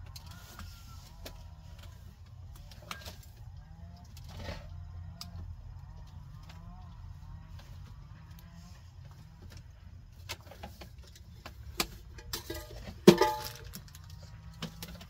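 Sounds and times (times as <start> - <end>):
kitchenware clicking and knocking: 12.2 - 13.8.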